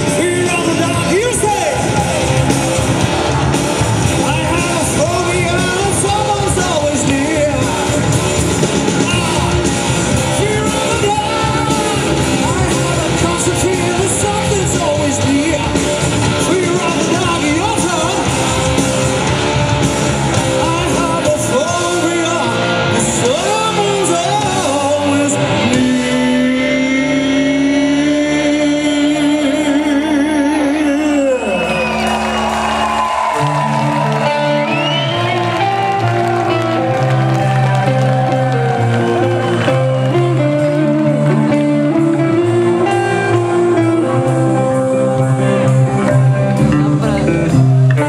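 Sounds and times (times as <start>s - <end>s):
drums: 0.0s - 48.0s
electric guitars: 0.0s - 48.0s
person singing: 4.1s - 18.8s, 20.3s - 31.7s.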